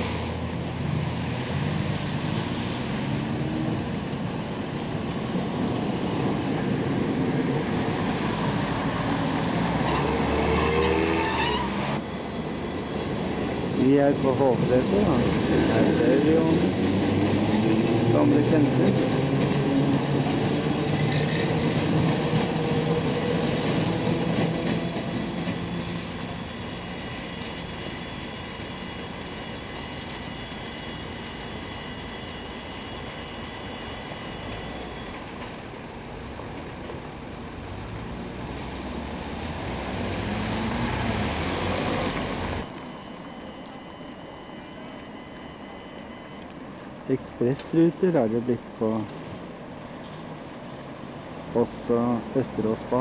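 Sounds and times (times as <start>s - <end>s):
train rumbling on rails: 0.0s - 53.0s.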